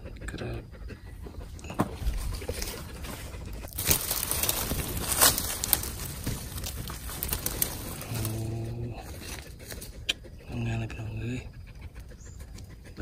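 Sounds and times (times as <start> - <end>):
rustling in dry leaves: 2.0 - 10.0.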